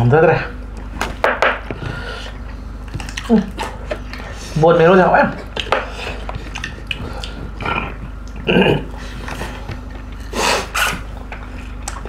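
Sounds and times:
loud slurps: 10.3 - 11.1.

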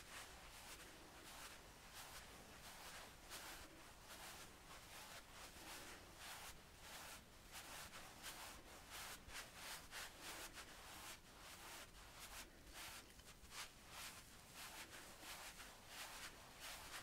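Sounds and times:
brushes swishing over skin: 0.0 - 17.0.

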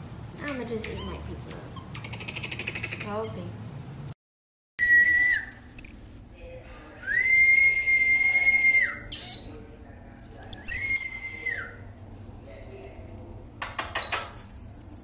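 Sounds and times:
marmoset whistling calls: 1.8 - 3.4, 4.8 - 6.4, 7.7 - 13.3, 14.0 - 15.0.

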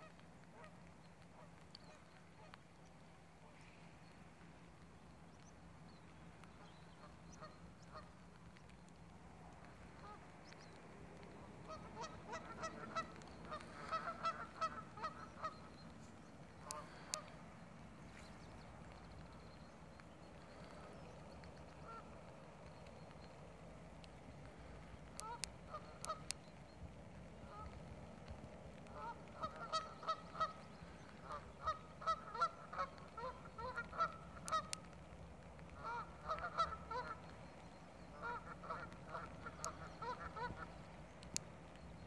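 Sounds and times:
sharp clicks: 6.4 - 17.4, 18.4 - 26.7, 32.8 - 42.0
geese honking: 11.2 - 16.0, 16.6 - 17.4, 25.1 - 26.4, 28.8 - 34.8, 35.7 - 37.3, 38.1 - 40.7.

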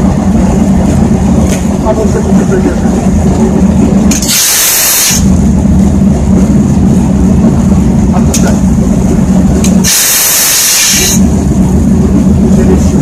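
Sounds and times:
diesel locomotive engine running: 0.0 - 13.0
air hiss: 4.1 - 5.3, 9.8 - 11.2.

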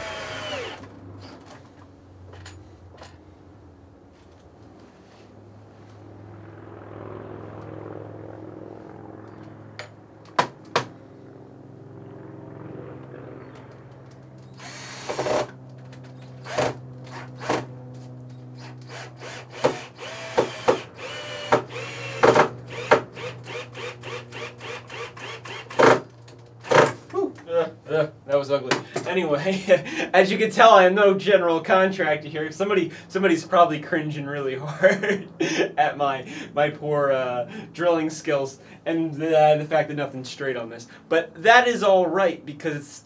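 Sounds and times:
cordless drill driving screws: 0.0 - 0.9, 14.5 - 15.6, 16.2 - 17.7, 18.6 - 26.9.

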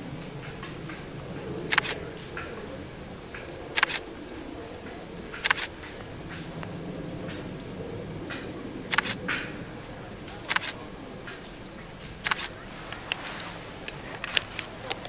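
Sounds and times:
short sharp clicks: 1.7 - 2.0, 3.8 - 4.0, 8.4 - 9.2, 10.2 - 10.8, 12.2 - 13.2.

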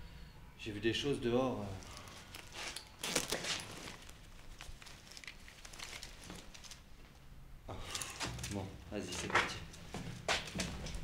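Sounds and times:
clothing and backpack rustling: 1.7 - 7.2
light scuffs and clicks: 7.8 - 11.0.

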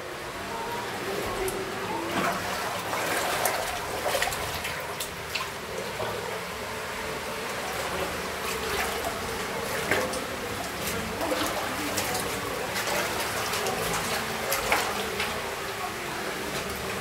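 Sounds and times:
spring water trickling through rock: 7.4 - 17.0.

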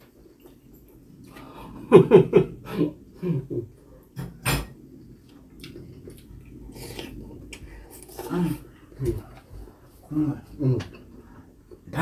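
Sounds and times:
mouth noises and chewing: 5.2 - 11.9.

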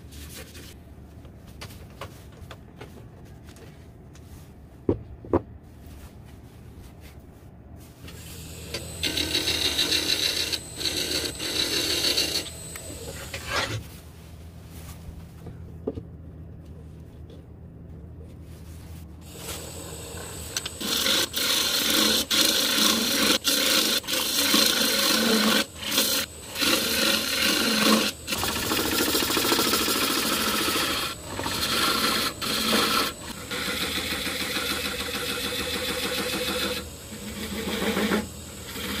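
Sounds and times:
turning tool cutting wood: 8.1 - 13.8, 19.2 - 39.0
wood lathe running: 8.2 - 13.6, 19.2 - 39.0.

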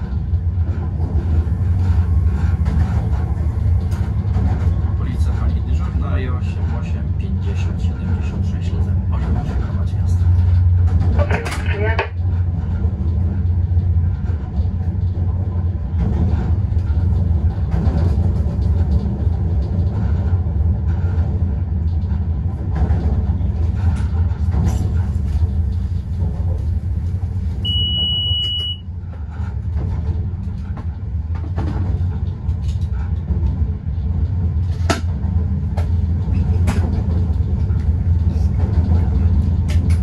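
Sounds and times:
train running low rumble: 0.0 - 40.0
high electronic beep: 27.7 - 28.8
sharp clicks and knocks: 38.6 - 40.0.

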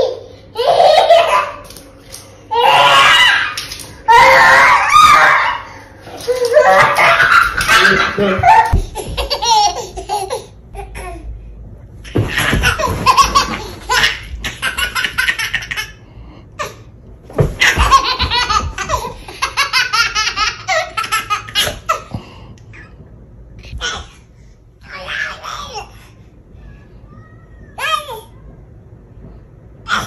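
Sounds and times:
small child laughing: 6.1 - 11.0.

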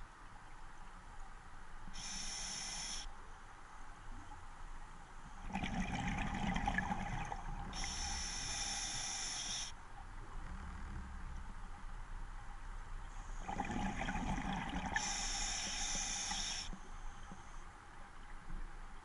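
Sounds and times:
regulator hissing inhale: 1.9 - 3.1, 7.6 - 9.8, 15.0 - 17.6
bubbling exhale underwater: 5.4 - 7.8, 13.4 - 15.2.

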